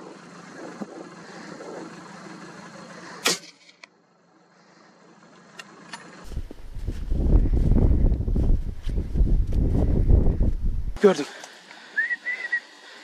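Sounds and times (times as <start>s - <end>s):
gunshot crack: 3.2s - 3.6s
wind rumble on microphone: 6.2s - 11.0s.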